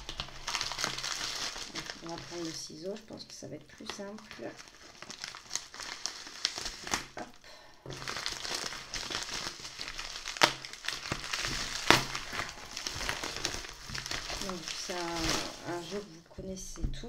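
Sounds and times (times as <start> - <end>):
plastic crinkling: 0.0 - 17.0
sharp plastic crackles: 0.0 - 17.0.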